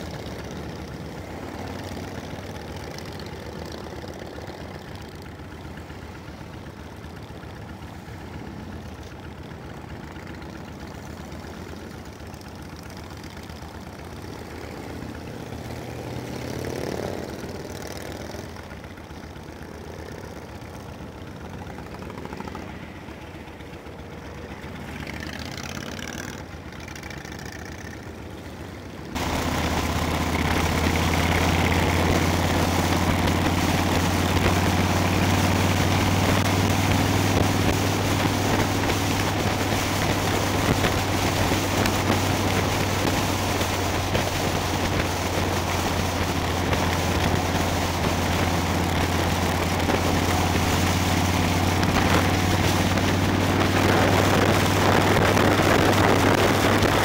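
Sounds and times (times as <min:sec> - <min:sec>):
motorcycle engine: 0:00.0 - 0:57.0
wind rush on microphone: 0:29.2 - 0:57.0.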